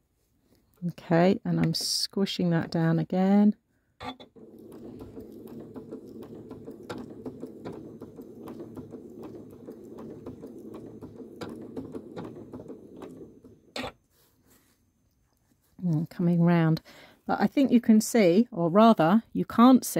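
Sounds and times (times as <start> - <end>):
sewing machine stitching: 4.3 - 14.0.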